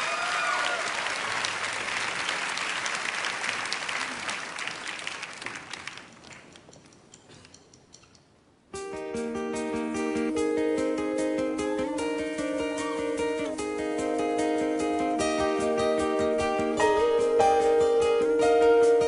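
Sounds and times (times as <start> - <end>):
audience applauding: 0.0 - 6.6
guitar plucked notes: 8.8 - 19.0.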